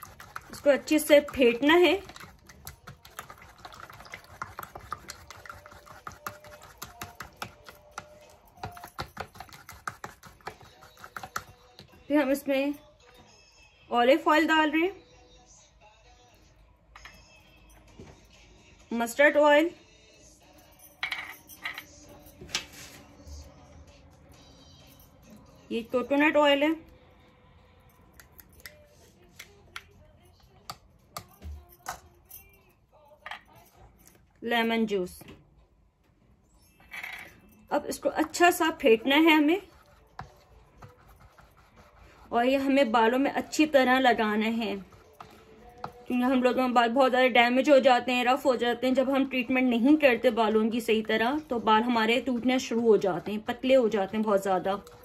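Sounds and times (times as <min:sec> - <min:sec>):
whisk clicking against bowl: 0:00.0 - 0:11.6.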